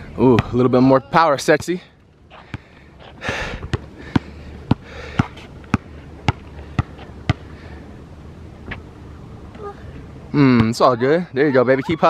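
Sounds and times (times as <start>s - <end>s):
basketball bouncing on hard court: 3.6s - 7.4s.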